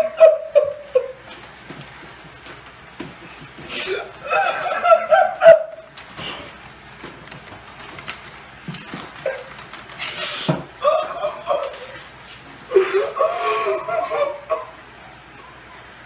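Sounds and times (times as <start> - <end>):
person whimpering and crying: 3.7 - 4.8, 12.7 - 14.7
paper rustling: 5.9 - 10.5.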